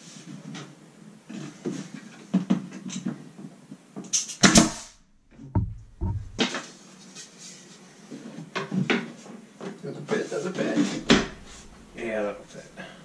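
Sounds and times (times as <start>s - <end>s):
low thuds: 4.4s - 6.4s, 11.0s - 13.0s
wooden trim knocking on wall: 5.6s - 6.4s.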